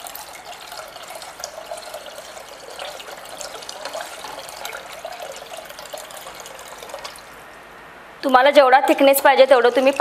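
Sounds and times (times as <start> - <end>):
water pouring into liquid: 0.0 - 7.4.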